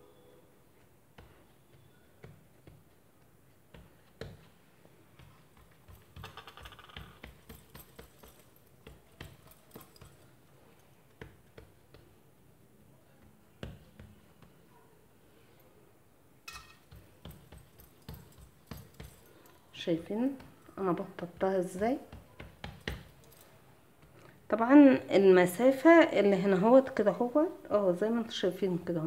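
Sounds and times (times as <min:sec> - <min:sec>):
hand patting dough: 0:00.8 - 0:14.7, 0:16.5 - 0:24.9.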